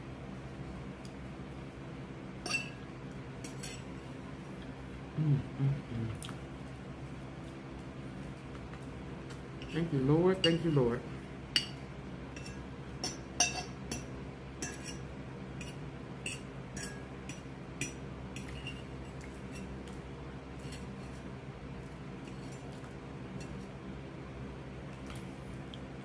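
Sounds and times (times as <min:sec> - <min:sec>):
cutlery clinking on dishes: 0:12.4 - 0:15.0.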